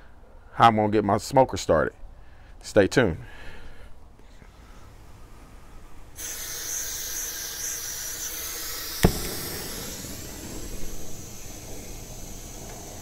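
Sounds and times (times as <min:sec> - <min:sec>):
gas torch hissing: 0:06.1 - 0:13.0
torch lighting pop: 0:08.9 - 0:13.0.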